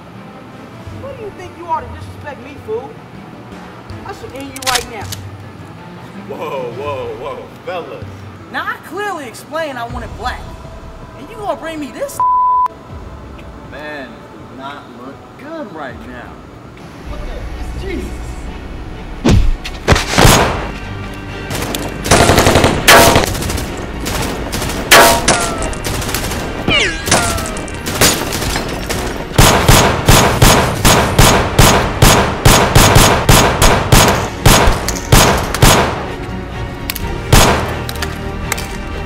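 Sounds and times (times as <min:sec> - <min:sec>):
gunshots: 0:19.3 - 0:20.7, 0:21.5 - 0:36.1, 0:37.3 - 0:38.0.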